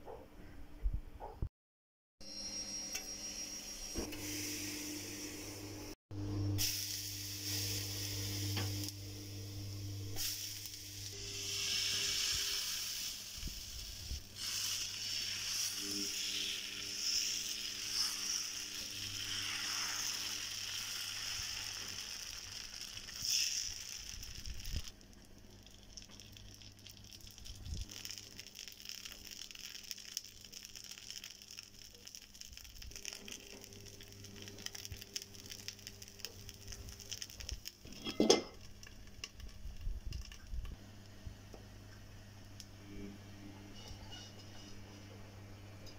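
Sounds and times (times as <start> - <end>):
batter sizzling on hot griddle: 6.6 - 9.4, 10.1 - 40.6.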